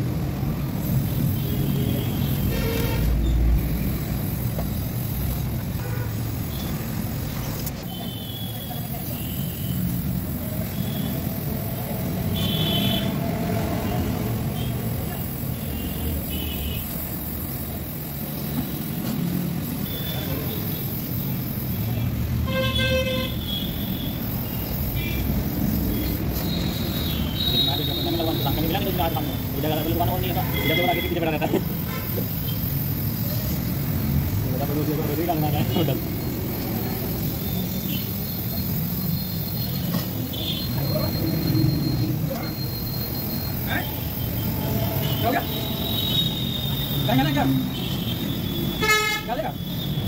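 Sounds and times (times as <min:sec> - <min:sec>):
gas torch hissing: 0:00.0 - 0:50.0
vehicle horn honk: 0:02.0 - 0:03.2, 0:12.4 - 0:13.1, 0:22.5 - 0:24.1, 0:47.7 - 0:49.6.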